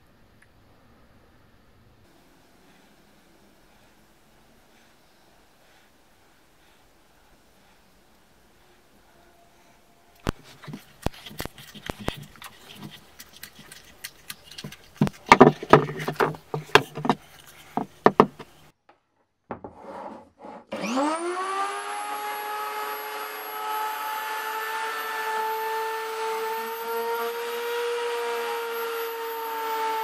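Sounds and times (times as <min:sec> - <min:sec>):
knocks and scrapes on wooden bench: 0:15.0 - 0:18.6, 0:19.5 - 0:20.7
electric router whining: 0:20.7 - 0:30.0.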